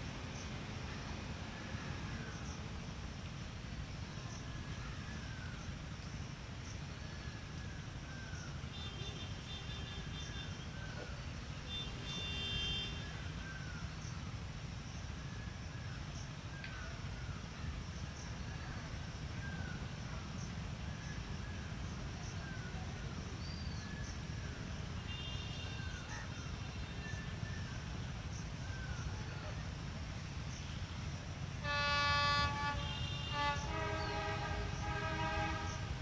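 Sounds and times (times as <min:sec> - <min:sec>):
distant diesel locomotive rumbling: 0:26.6 - 0:36.0.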